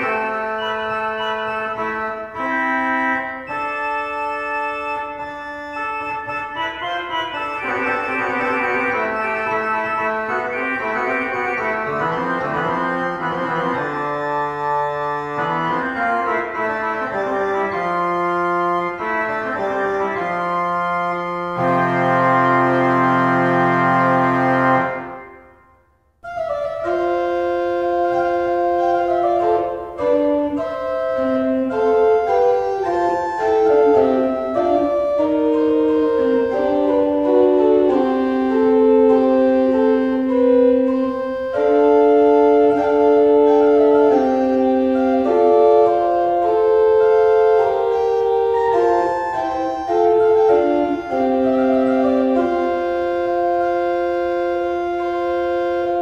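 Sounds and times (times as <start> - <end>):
organ playing sustained chords: 0.0 - 56.0.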